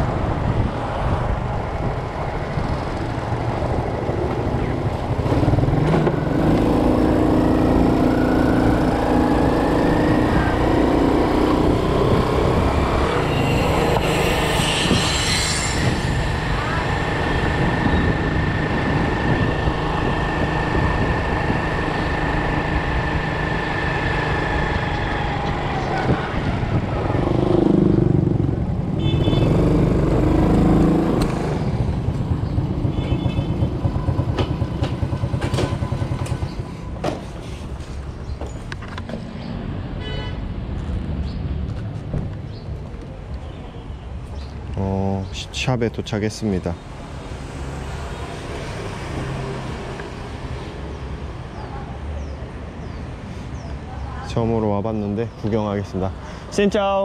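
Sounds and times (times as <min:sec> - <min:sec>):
wind noise: 0:00.0 - 0:06.2, 0:09.5 - 0:38.0
motorbike engine: 0:15.7 - 0:36.7.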